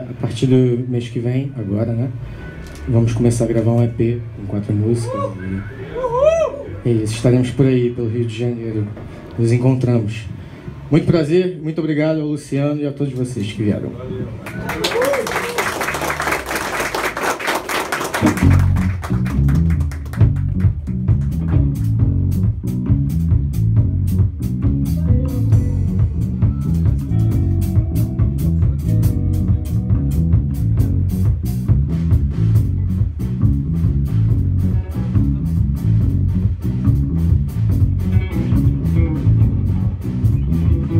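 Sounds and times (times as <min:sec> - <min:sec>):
people clapping: 0:14.4 - 0:21.9
electric bass guitar: 0:18.0 - 0:40.9
drum kit steady beat: 0:18.2 - 0:40.9
electric guitar lines: 0:34.3 - 0:40.9.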